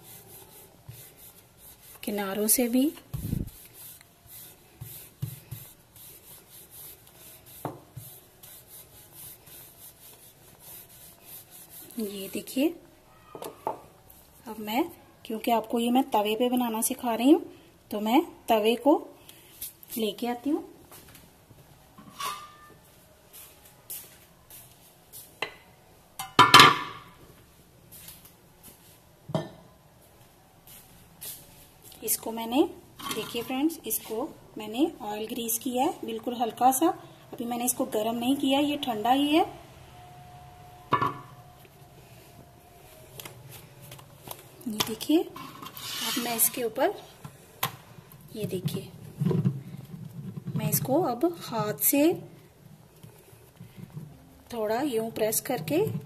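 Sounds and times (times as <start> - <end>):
rolling pin rolling dough: 0.0 - 12.8.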